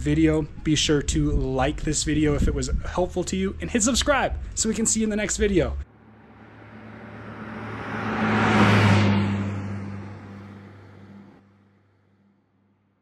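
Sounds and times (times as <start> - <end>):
low humming whoosh: 5.7 - 11.4.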